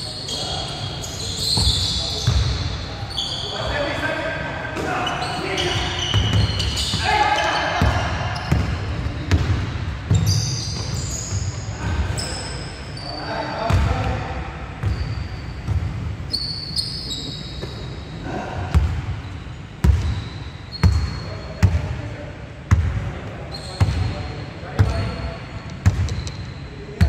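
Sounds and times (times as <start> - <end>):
sneakers squeaking on court: 0.0 - 4.0, 4.7 - 22.0, 22.7 - 27.0
players' voices: 0.0 - 14.7.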